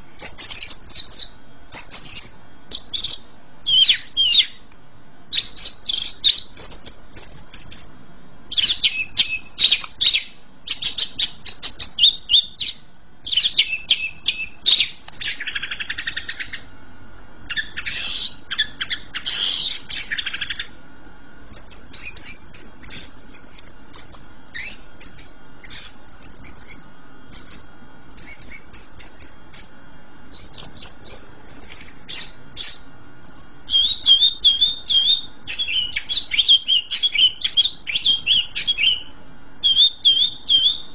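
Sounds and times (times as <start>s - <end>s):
buzzy rattling bird call: 0.0s - 4.5s, 17.5s - 20.7s, 21.5s - 32.9s
bird singing whistles and trills: 0.2s - 4.6s, 5.3s - 16.7s, 17.5s - 20.8s, 21.5s - 32.9s, 33.7s - 40.9s.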